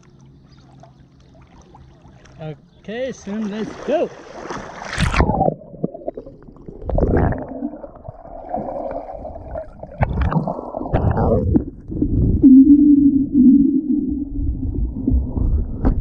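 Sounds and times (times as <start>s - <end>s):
muffled underwater rushing water: 0.0s - 16.0s
underwater bubbling: 4.1s - 16.0s.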